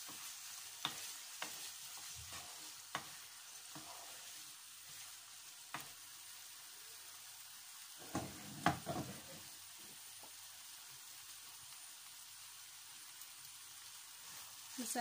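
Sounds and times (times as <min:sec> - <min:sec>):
food sizzling in oil: 0:00.0 - 0:15.0.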